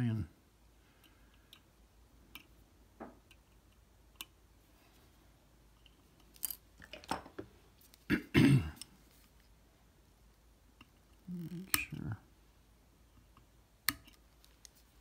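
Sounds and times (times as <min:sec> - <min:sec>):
tools and parts clicking: 0:05.8 - 0:08.0.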